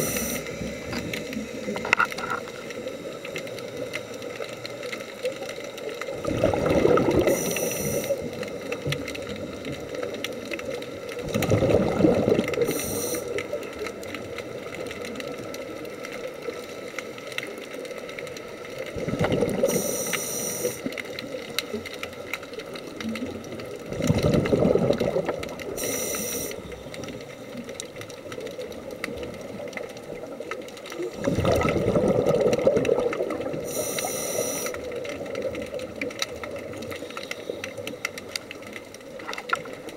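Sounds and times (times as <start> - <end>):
regulator hiss: 0.0 - 5.2, 7.2 - 9.6, 12.6 - 13.8, 19.6 - 21.2, 25.6 - 27.5, 33.5 - 35.0
exhaled bubbles underwater: 0.0 - 39.9.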